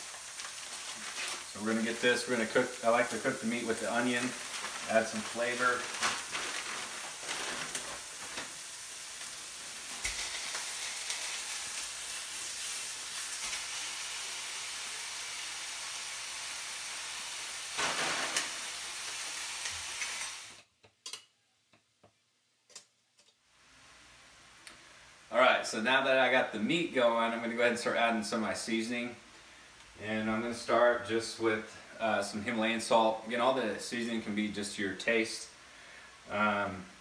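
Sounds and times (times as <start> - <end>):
meat frying sizzle: 0.0 - 20.7.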